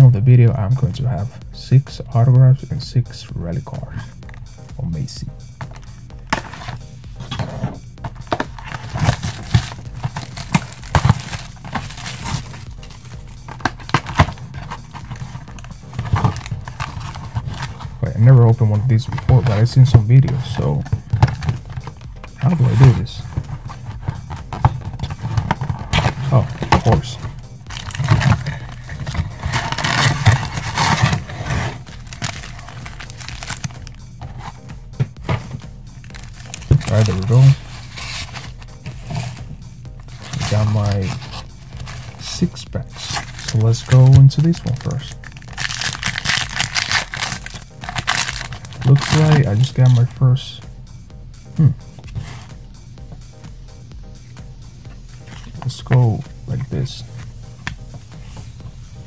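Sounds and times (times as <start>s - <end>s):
plastic shrink-wrap crinkling: 8.2s - 18.0s, 20.4s - 34.5s, 36.1s - 42.3s, 42.9s - 50.0s.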